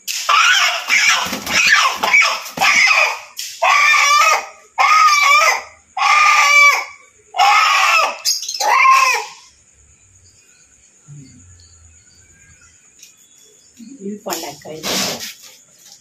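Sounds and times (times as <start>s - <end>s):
chicken squawking: 0.2s - 9.5s.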